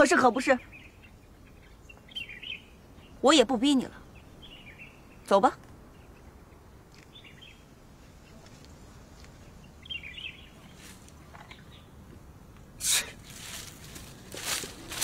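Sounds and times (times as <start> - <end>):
faint bird chirps: 0.0 - 8.6.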